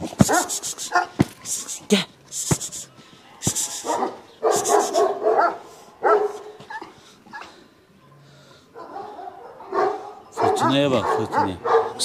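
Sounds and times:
puppies barking and yelping: 0:00.0 - 0:01.7, 0:03.6 - 0:07.6, 0:08.8 - 0:12.0.

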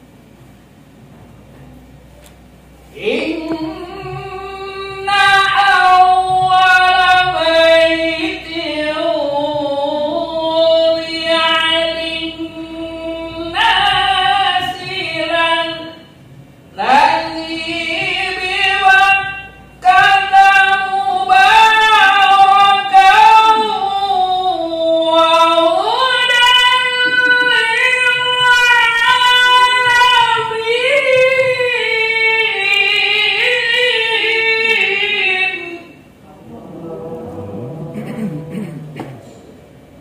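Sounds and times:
man chanting recitation: 0:34.8 - 0:39.3.

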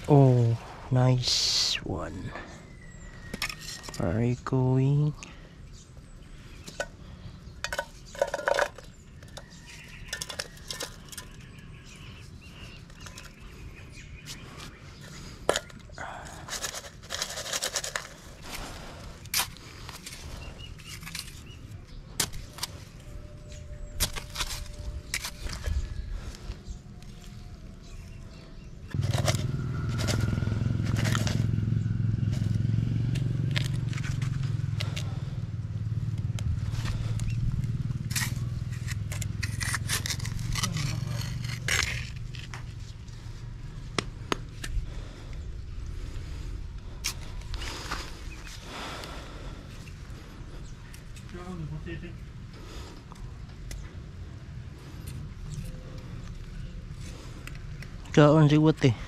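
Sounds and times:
machete digging into dry soil: 0:19.2 - 0:20.2, 0:38.0 - 0:42.7.

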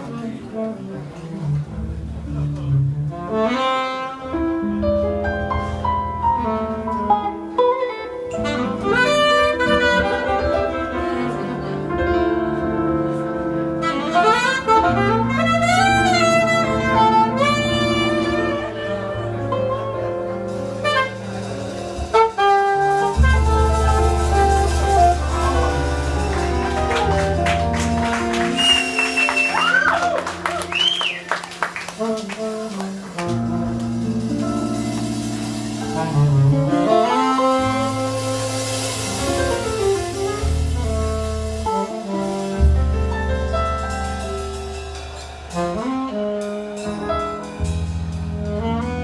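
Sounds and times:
electric bass: 0:00.0 - 0:03.6, 0:04.2 - 0:31.3, 0:31.9 - 0:49.0
saxophone melody: 0:00.0 - 0:44.2, 0:45.4 - 0:49.0
drums: 0:00.0 - 0:49.0.

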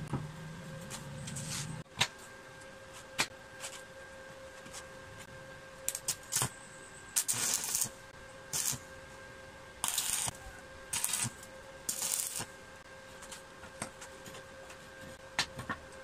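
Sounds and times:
faint steady hum: 0:00.0 - 0:16.0
welding arc crackling: 0:05.9 - 0:06.5, 0:07.2 - 0:08.9, 0:09.8 - 0:12.5.

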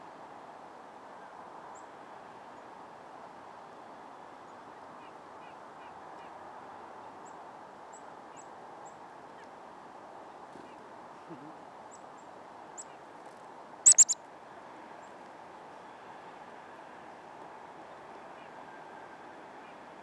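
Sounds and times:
bird chip notes: 0:13.9 - 0:14.2.

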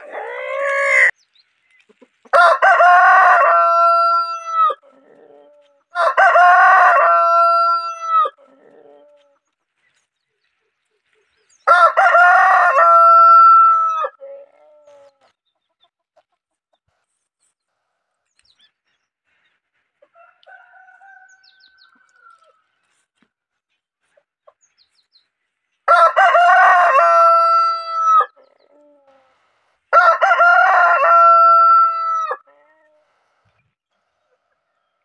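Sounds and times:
rooster crowing: 0:00.0 - 0:01.1, 0:02.3 - 0:04.8, 0:05.9 - 0:08.9, 0:11.7 - 0:14.5, 0:20.2 - 0:22.6, 0:25.9 - 0:28.4, 0:29.9 - 0:33.1.

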